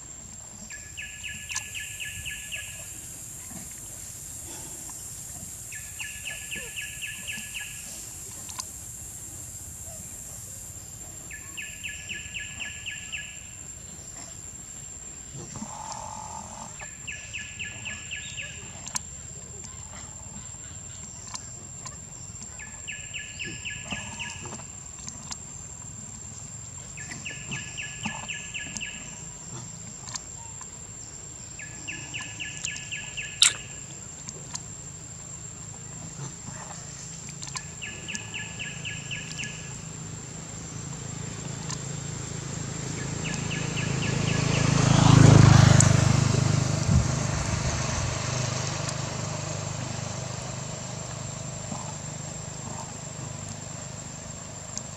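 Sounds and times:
rapid trilling call: 5.7s - 8.1s, 31.6s - 34.0s, 37.5s - 40.0s
vehicle passing: 37.8s - 54.5s.

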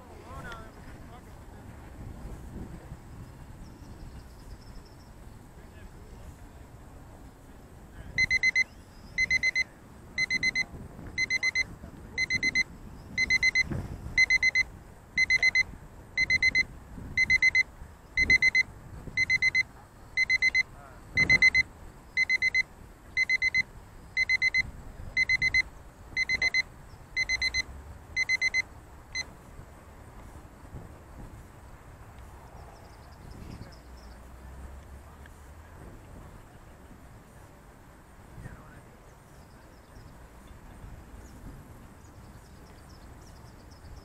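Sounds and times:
wind buffeting microphone: 0.0s - 19.4s, 20.1s - 22.0s, 28.8s - 44.0s
electronic alarm beeping: 8.2s - 29.3s.

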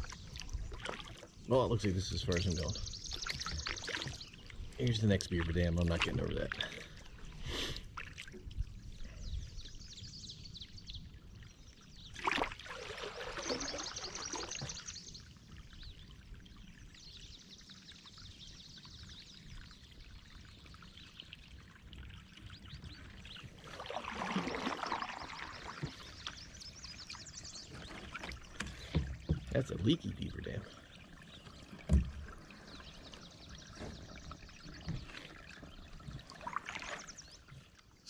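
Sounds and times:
water trickling and pouring: 0.0s - 9.7s, 11.0s - 38.0s
wash of water: 12.2s - 14.8s, 23.5s - 26.5s.

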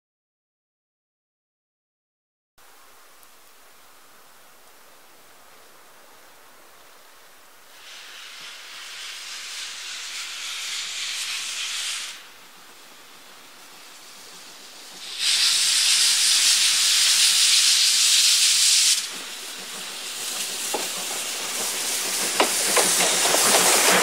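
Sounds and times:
steam hissing: 7.7s - 24.0s
train rumble: 7.7s - 24.0s
wheels clicking over rail joints: 19.1s - 24.0s.

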